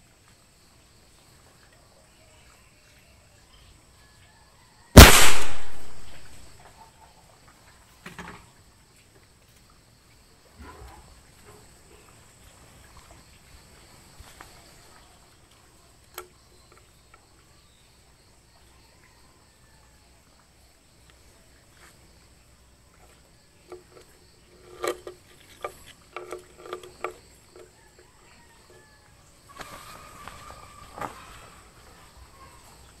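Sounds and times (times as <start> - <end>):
air rifle shot: 5.0 - 6.4.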